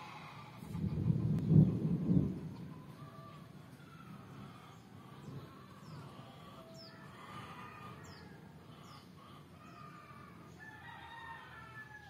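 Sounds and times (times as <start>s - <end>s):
faint rooster crowing: 2.6s - 12.0s.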